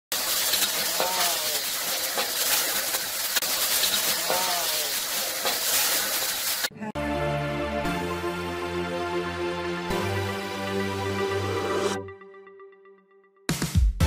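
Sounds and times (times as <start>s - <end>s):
meat sizzling in oil: 0.1s - 6.7s
spatula scraping a wok: 0.2s - 6.7s.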